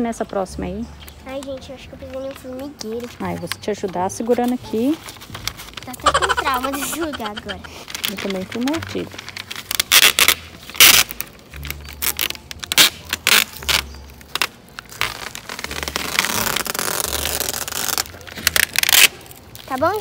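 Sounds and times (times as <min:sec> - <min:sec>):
masking tape ripping off roll: 0:04.4 - 0:20.0.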